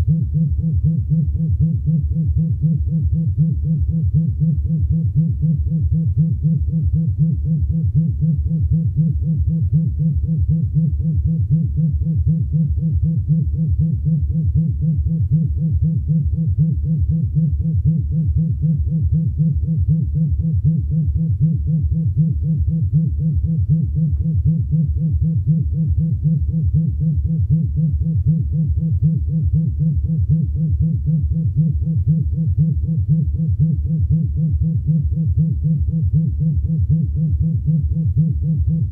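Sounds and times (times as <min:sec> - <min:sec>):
vibrator pulsing buzz: 0:00.0 - 0:38.9.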